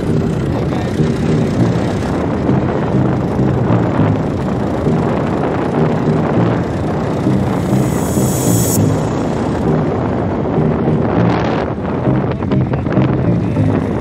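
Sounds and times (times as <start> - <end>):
vehicle rumble: 0.0 - 14.0
wind buffeting microphone: 0.0 - 14.0.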